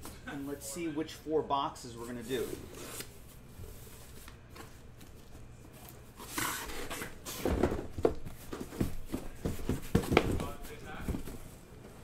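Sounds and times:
boxes knocking and bumping: 0:07.3 - 0:11.4.

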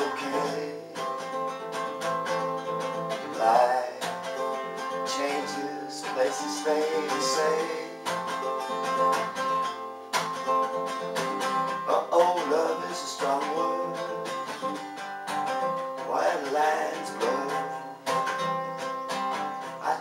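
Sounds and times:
man singing: 0:00.0 - 0:01.4, 0:03.0 - 0:09.0, 0:11.2 - 0:14.8, 0:15.7 - 0:18.4, 0:19.6 - 0:20.0
acoustic guitar strumming: 0:00.0 - 0:20.0.

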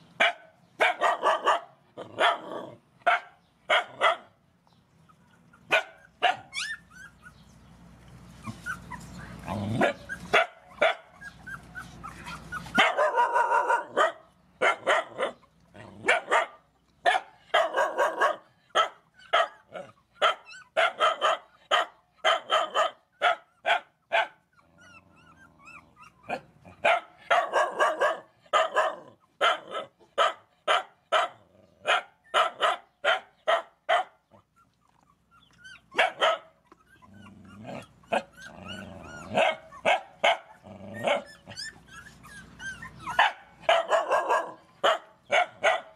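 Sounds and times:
dog barking: 0:00.2 - 0:04.3, 0:05.7 - 0:06.5, 0:09.8 - 0:11.1, 0:12.8 - 0:15.4, 0:16.0 - 0:24.4, 0:26.3 - 0:34.2, 0:36.0 - 0:36.5, 0:39.3 - 0:41.3, 0:43.2 - 0:45.9
dog whining: 0:05.0 - 0:07.5, 0:08.4 - 0:13.5, 0:19.1 - 0:20.8, 0:24.5 - 0:26.8, 0:34.2 - 0:44.6.

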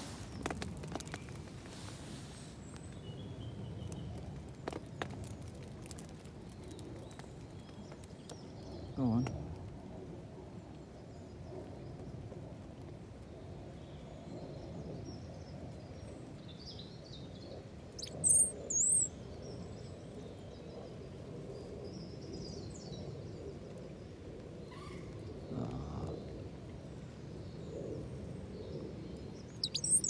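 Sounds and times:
songbird twittering: 0:18.0 - 0:19.2, 0:29.4 - 0:30.0
sharp high bird chirps: 0:29.6 - 0:30.0.

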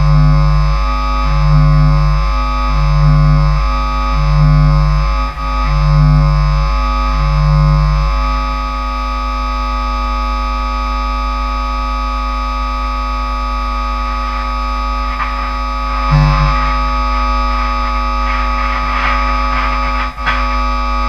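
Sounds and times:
distorted bass guitar drone: 0:00.0 - 0:21.0
low hum: 0:00.0 - 0:21.0
low bass note: 0:13.8 - 0:21.0.

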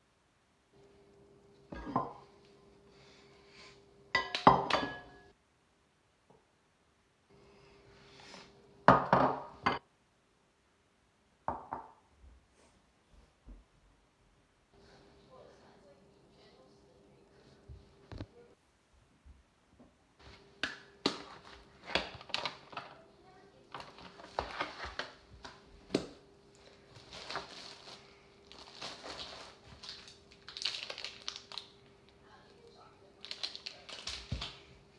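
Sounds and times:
faint steady hum: 0:00.0 - 0:34.9
kitchen knocks and clinks: 0:01.7 - 0:02.2, 0:04.2 - 0:05.3, 0:08.9 - 0:09.8.

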